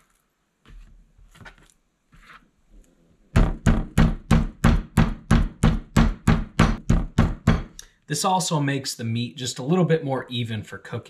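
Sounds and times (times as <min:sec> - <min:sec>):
meat mallet pounding on cutting board: 0:03.4 - 0:07.8.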